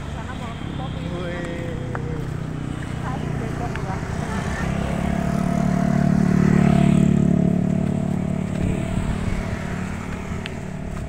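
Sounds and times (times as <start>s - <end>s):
motorcycle passing by: 0.0s - 11.0s.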